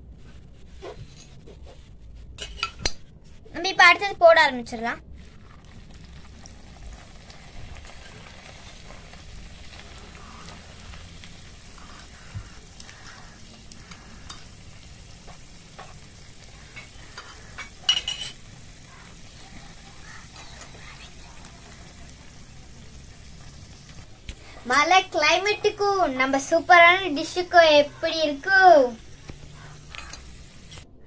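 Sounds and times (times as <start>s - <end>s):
spoon stirring oil: 0.8s - 3.0s, 5.2s - 27.4s, 29.0s - 30.9s
hot oil sizzling: 3.6s - 30.9s.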